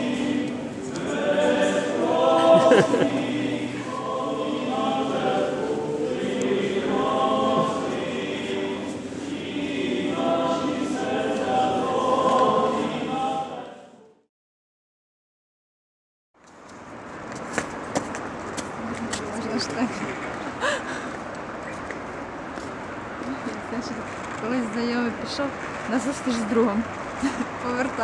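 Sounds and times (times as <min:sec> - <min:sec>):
church choir singing: 0:00.0 - 0:14.3.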